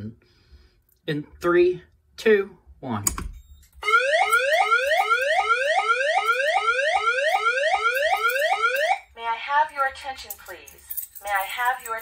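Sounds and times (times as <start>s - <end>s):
rising alarm tone sweeps: 3.8s - 9.0s.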